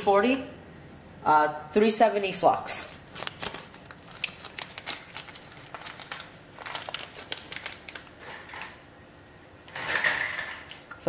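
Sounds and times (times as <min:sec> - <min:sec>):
crinkly rustling: 0:03.1 - 0:08.8.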